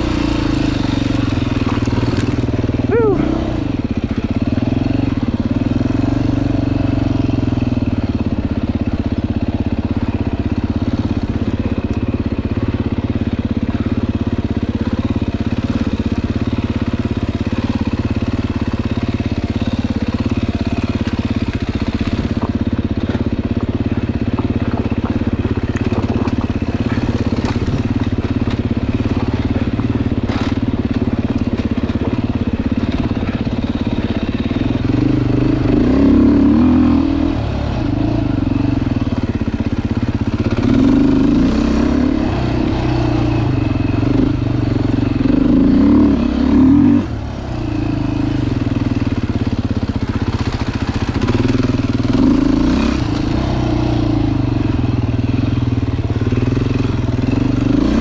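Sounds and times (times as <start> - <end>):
dirt bike engine running: 0.0 - 58.0
light ticks and clatter: 24.2 - 29.5.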